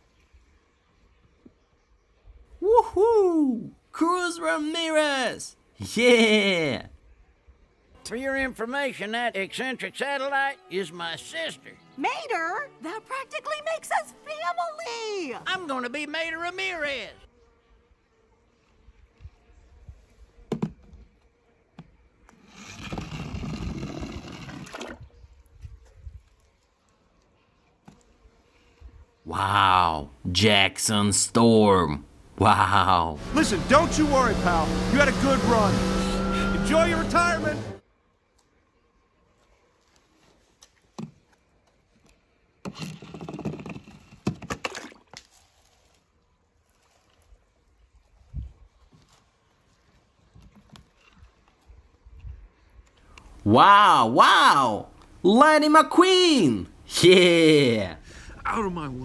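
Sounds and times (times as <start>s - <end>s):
splash into water: 24.5s - 25.0s, 44.5s - 45.5s.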